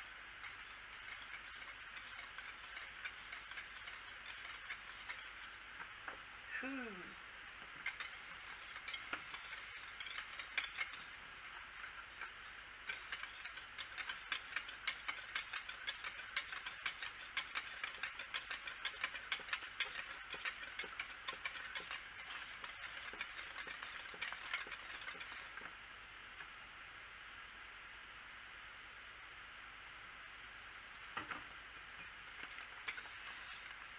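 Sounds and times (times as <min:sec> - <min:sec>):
whisk clicking against crock: 0:00.4 - 0:05.6, 0:07.8 - 0:25.7, 0:32.3 - 0:33.9.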